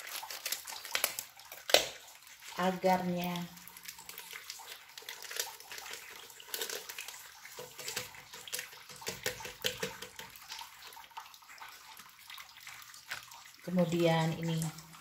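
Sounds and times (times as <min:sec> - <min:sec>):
plastic packets crinkling: 0:00.0 - 0:02.0, 0:03.8 - 0:10.2.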